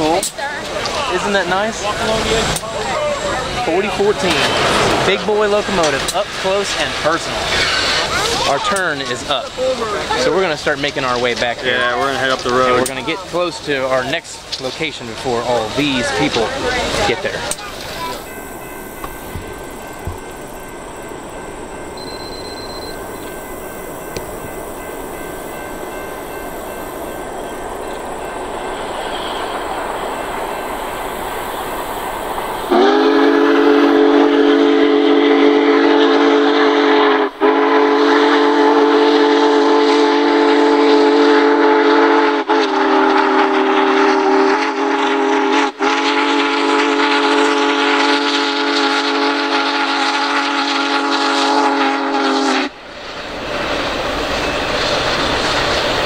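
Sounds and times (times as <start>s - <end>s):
steam locomotive rumbling: 0.0s - 56.0s
steam whistle blasts: 32.7s - 52.8s.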